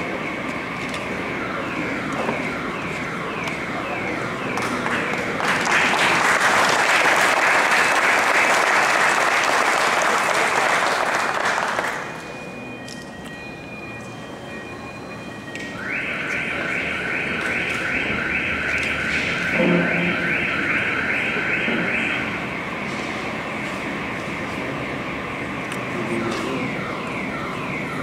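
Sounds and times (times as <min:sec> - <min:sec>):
crowd applauding: 0:04.6 - 0:12.2.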